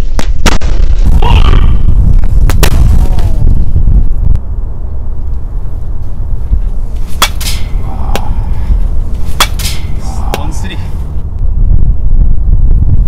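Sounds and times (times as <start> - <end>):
wind rumbling on microphone: 0.0 - 13.0
bat hitting baseball: 7.0 - 8.6, 9.2 - 10.6.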